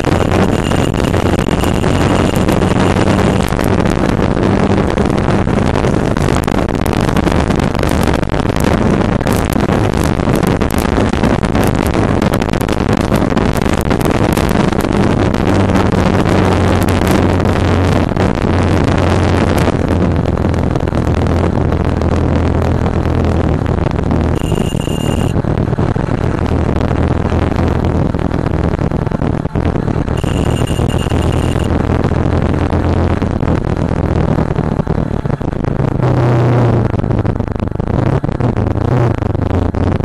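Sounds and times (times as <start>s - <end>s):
motorcycle engine hum: 0.0s - 40.0s
wind buffeting microphone: 0.0s - 40.0s.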